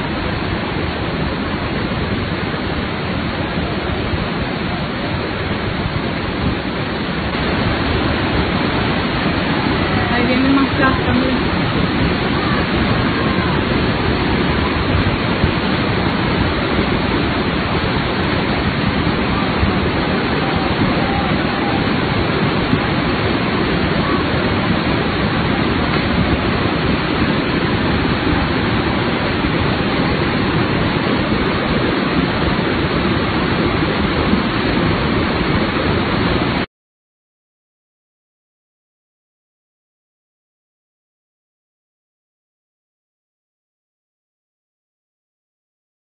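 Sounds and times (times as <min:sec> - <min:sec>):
flood torrent rushing: 0:00.0 - 0:36.7.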